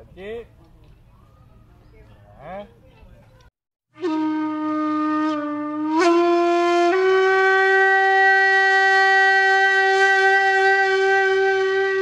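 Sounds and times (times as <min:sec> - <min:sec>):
wind instrument long note: 0:03.9 - 0:12.0.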